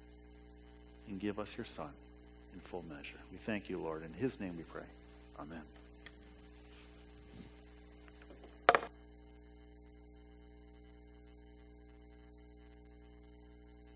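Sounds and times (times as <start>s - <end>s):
low held tones humming: 0.0s - 13.9s
knock on lectern: 8.6s - 8.9s.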